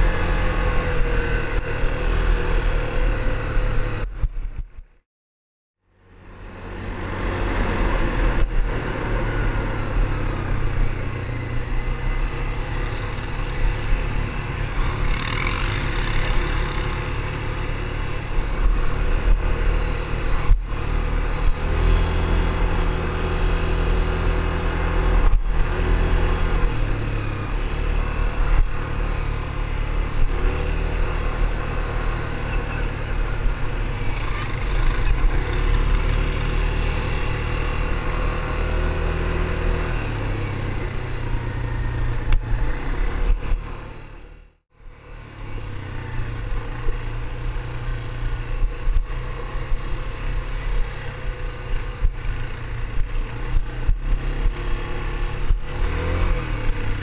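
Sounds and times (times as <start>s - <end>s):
atv engine revving: 0.0s - 4.1s, 6.4s - 57.0s.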